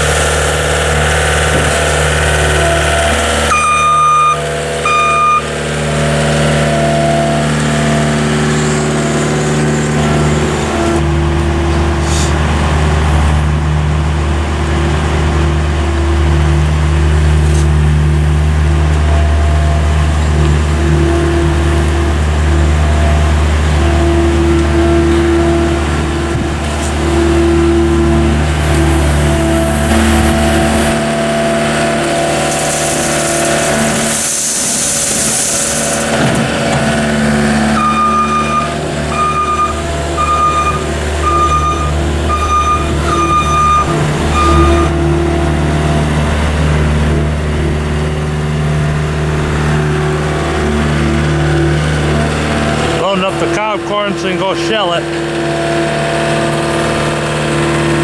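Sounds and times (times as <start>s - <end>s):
diesel engine running: 0.0s - 58.0s
warning beeper: 2.5s - 5.5s, 37.8s - 45.0s.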